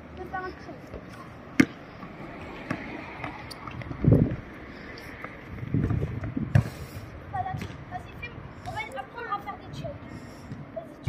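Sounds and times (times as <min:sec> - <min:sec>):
wind rumble on microphone: 0:02.4 - 0:04.6, 0:05.4 - 0:08.6.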